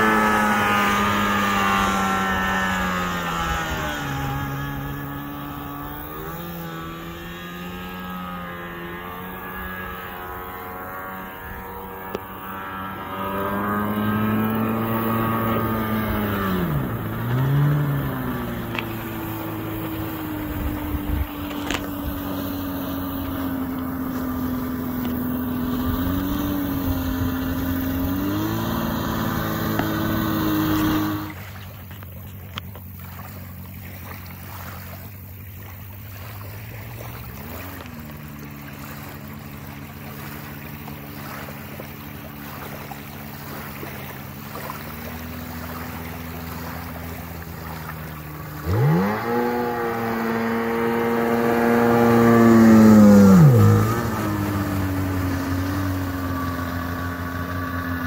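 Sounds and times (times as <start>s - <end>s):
boat engine passing: 0.0s - 58.0s.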